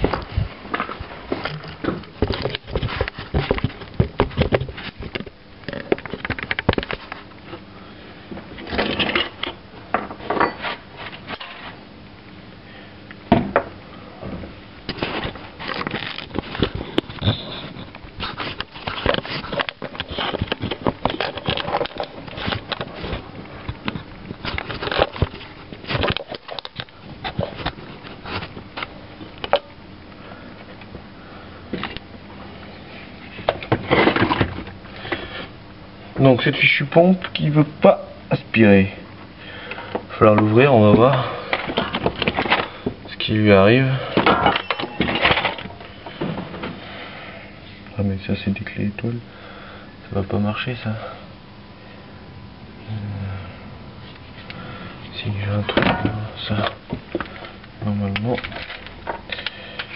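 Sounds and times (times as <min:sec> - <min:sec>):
metal parts and tools clinking: 0:44.2 - 0:45.8.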